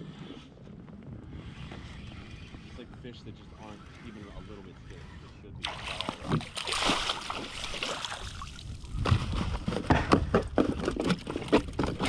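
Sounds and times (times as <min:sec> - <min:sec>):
fish thrashing in a net: 0:05.6 - 0:08.5
water splashing: 0:05.6 - 0:08.8
knocks and rattles on plastic: 0:09.0 - 0:12.0.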